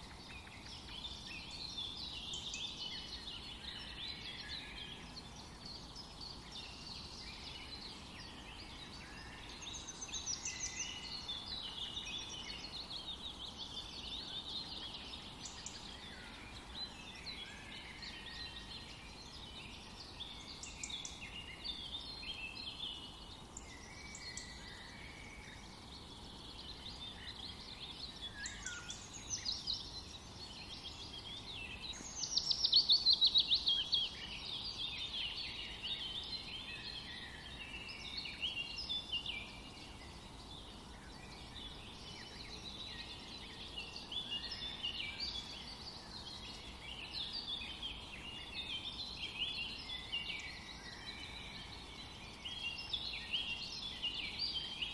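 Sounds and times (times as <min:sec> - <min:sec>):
birds chirping: 0:00.0 - 0:54.9.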